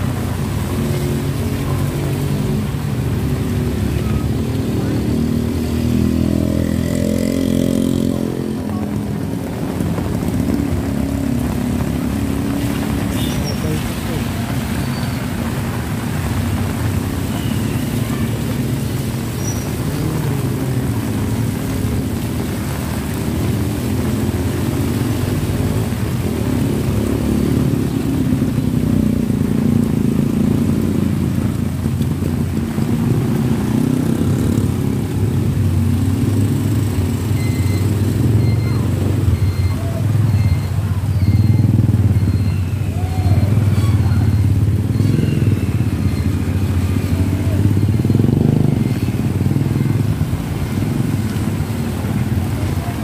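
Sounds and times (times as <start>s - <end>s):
motorcycle engines passing: 0.0s - 53.0s
faint short beep: 37.3s - 46.4s.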